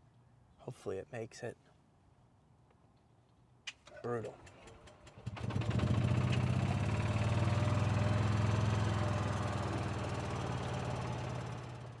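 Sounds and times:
small petrol engine running: 4.3 - 12.0.

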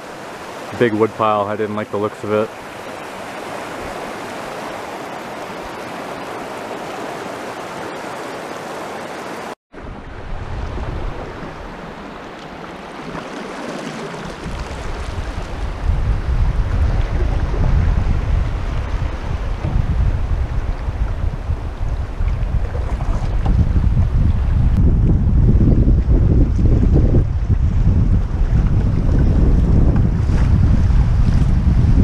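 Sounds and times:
river current rushing: 0.0 - 22.2
wind buffeting microphone: 9.8 - 32.0.

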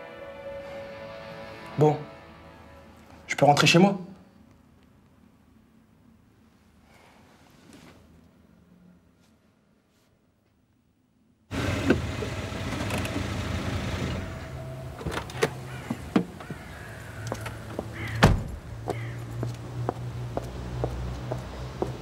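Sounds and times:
car engine humming: 11.5 - 22.0
street noise: 11.5 - 22.0
loud thump: 18.2 - 18.6.

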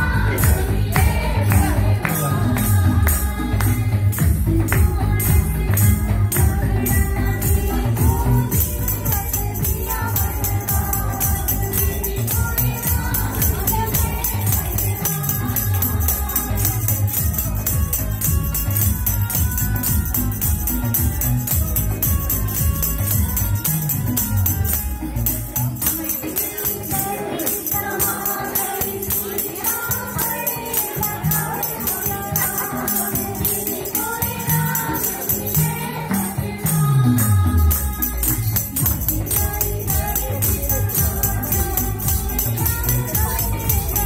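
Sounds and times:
folk song singing over a beat: 0.0 - 44.0
jingling percussion: 0.0 - 44.0.

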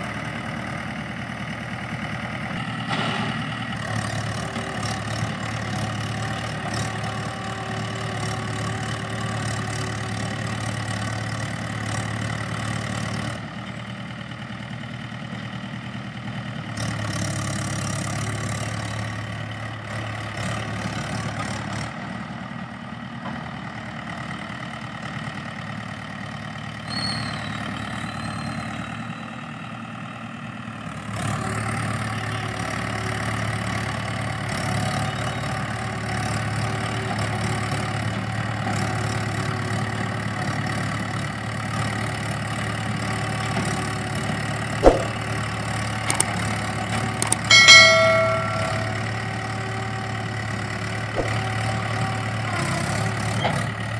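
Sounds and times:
diesel tractor engine idling: 0.0 - 53.9.

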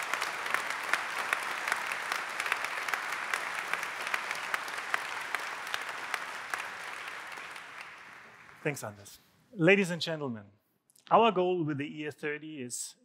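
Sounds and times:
audience clapping: 0.0 - 9.1.

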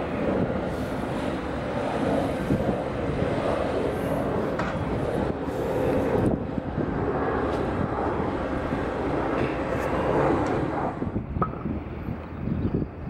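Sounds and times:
turboprop engines droning: 0.0 - 13.0.

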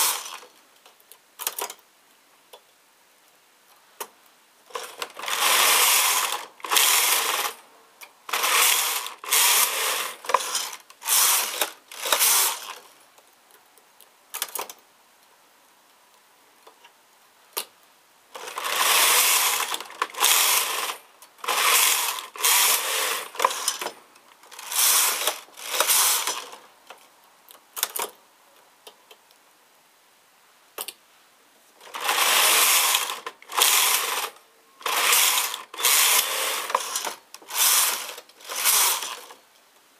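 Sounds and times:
knitting machine carriage passes: 0.0 - 0.4, 4.7 - 7.6, 8.3 - 12.8, 18.4 - 26.6, 31.8 - 39.4.

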